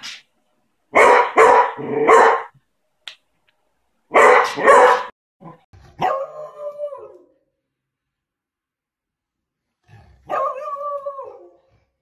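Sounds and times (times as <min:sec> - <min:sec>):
dog barking: 0:00.9 - 0:02.6, 0:04.1 - 0:05.1, 0:10.3 - 0:10.7.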